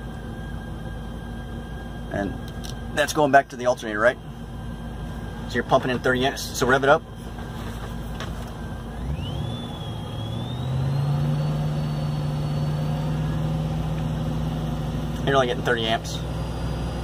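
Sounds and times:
thin high whine: 0.0s - 17.0s
car engine revving: 8.6s - 17.0s.

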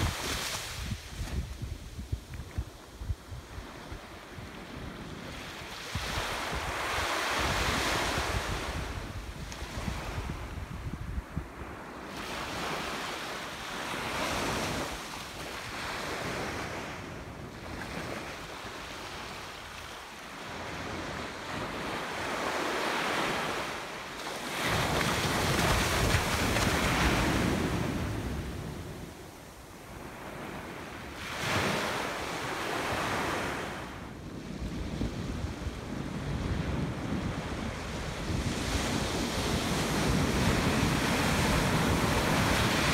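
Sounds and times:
small waves breaking on sand: 0.0s - 10.6s, 11.7s - 42.9s
wind buffeting microphone: 0.0s - 12.4s, 34.4s - 42.9s.

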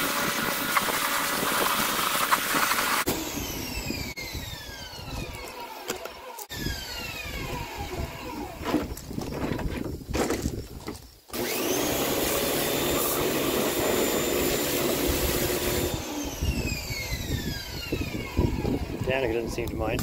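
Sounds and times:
pressure washer running: 0.0s - 3.9s, 11.4s - 16.4s.

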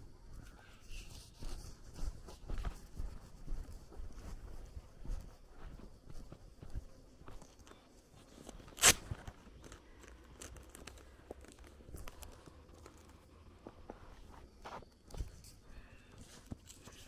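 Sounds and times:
footsteps on grass: 0.9s - 9.3s
sharp crack: 8.7s - 9.3s.

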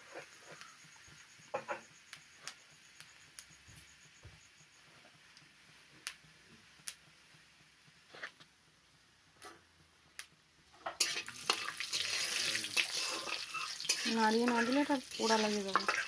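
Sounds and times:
loud crackling sizzle: 0.0s - 16.0s
seeds popping in hot oil: 5.1s - 8.6s, 9.3s - 16.0s
spatula stirring in a pan: 11.0s - 16.0s.

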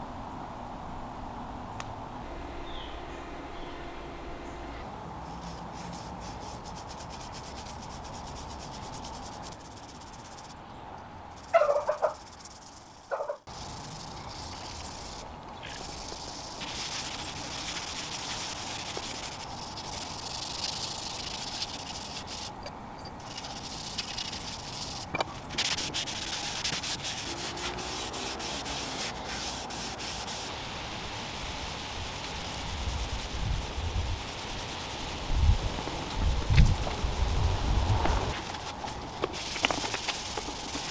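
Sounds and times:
cloth rag rubbing wood: 11.4s - 22.5s, 23.2s - 30.5s, 38.4s - 40.9s.

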